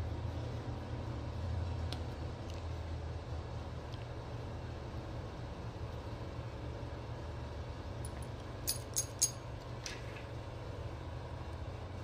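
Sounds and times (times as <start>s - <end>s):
steady low hum: 0.0s - 12.0s
metal parts clicking together: 8.1s - 9.4s.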